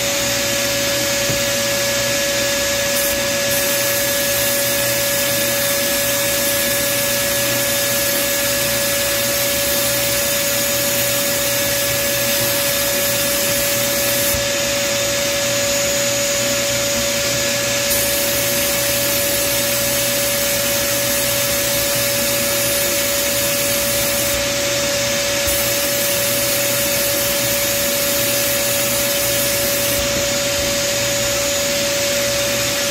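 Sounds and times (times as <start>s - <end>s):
steady high whine: 0.0s - 32.9s
sandblasting air gun hissing: 2.8s - 14.4s, 17.8s - 31.4s.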